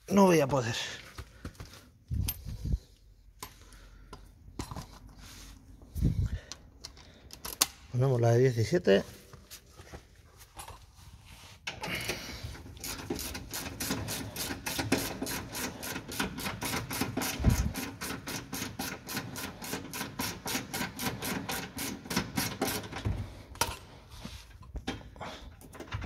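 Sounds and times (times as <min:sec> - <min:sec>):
ratchet wrench clicking: 0:12.8 - 0:22.9.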